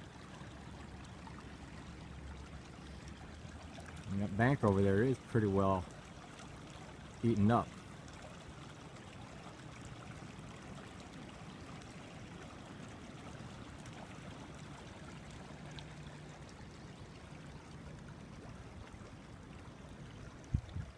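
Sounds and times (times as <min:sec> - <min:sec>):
creek water rushing: 0:00.0 - 0:20.9.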